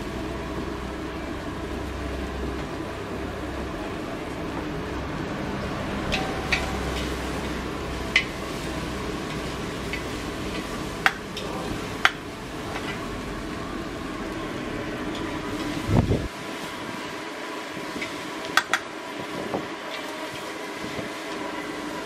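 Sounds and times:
noodles sizzling in a wok: 0.0 - 22.0
steady rushing noise: 0.8 - 19.7
metal spatula scraping wok: 5.7 - 11.7
utensils clinking on wok: 6.0 - 13.1.

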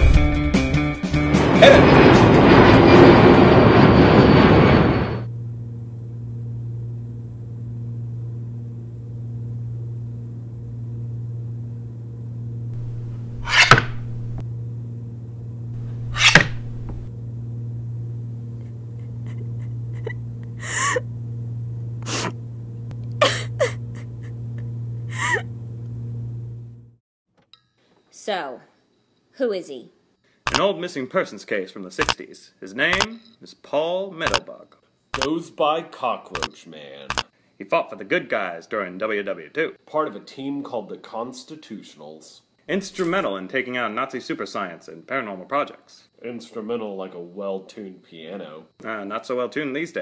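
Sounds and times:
steady low hum: 4.6 - 27.0
short sharp sounds: 15.8 - 17.1.

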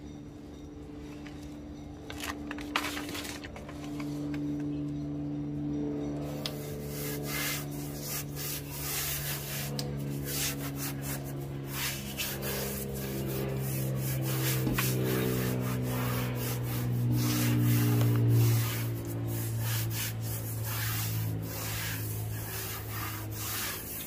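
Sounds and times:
hands swishing across foam: 7.0 - 24.0.

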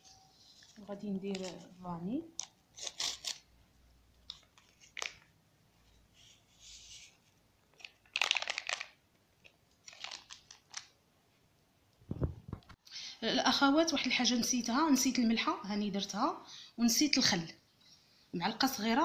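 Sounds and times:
packet crinkling and tearing: 1.2 - 3.4, 4.2 - 5.3, 7.7 - 9.0, 9.8 - 11.0.

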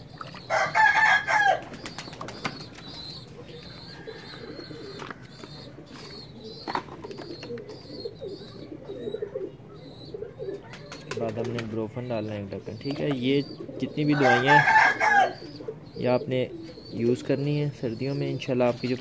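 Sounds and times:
high bird chirps: 0.0 - 11.3, 12.6 - 19.0
pigeons cooing: 0.0 - 19.0
rooster crowing: 0.5 - 1.6, 3.9 - 4.9, 14.1 - 15.4.

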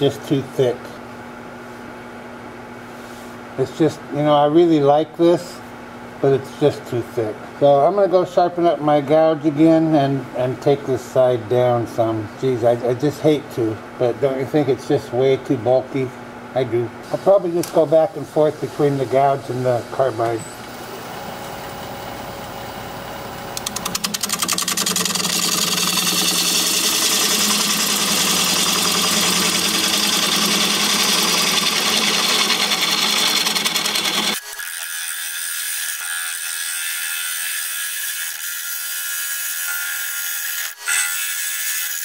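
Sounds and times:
wood lathe humming: 20.7 - 38.4
gouge cutting wood: 23.6 - 42.0.

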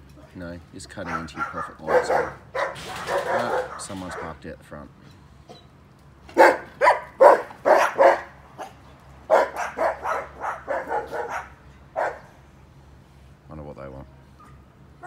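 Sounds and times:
dog barking: 0.9 - 4.4, 6.3 - 12.4.

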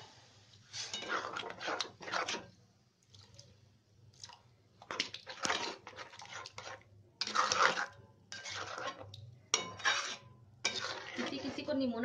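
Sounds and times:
ladle stirring and scraping pan: 0.0 - 3.3, 4.3 - 12.0.

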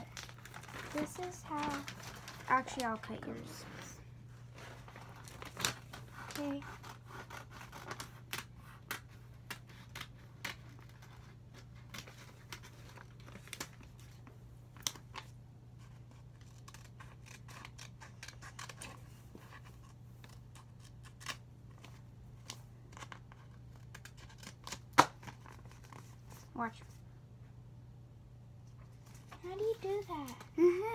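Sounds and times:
scissors snipping paper: 15.9 - 19.0, 19.8 - 25.4.

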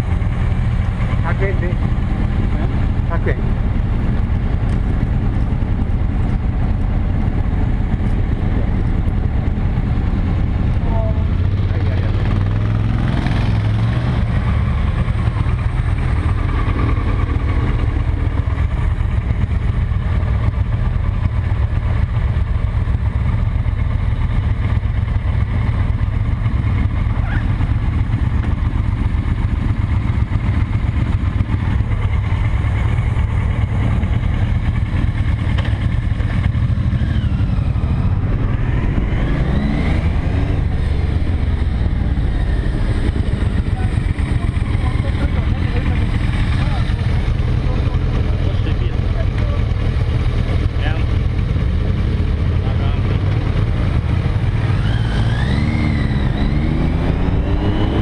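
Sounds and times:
motorcycle engine rumbling: 0.0 - 58.0.

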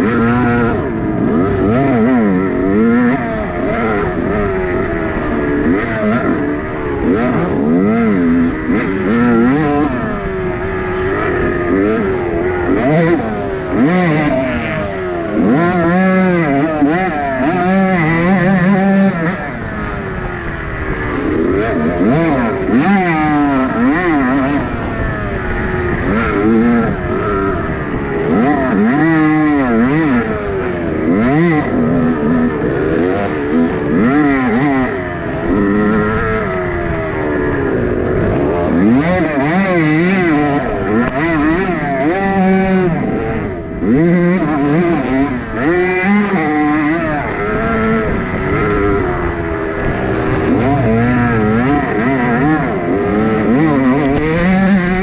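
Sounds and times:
dirt bike engine revving: 0.0 - 55.0.

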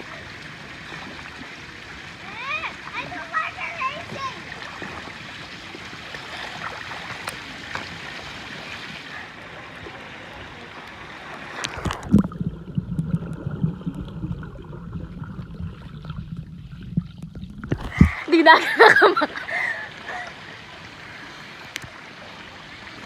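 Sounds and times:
pool water sloshing and splashing: 0.0 - 23.0.

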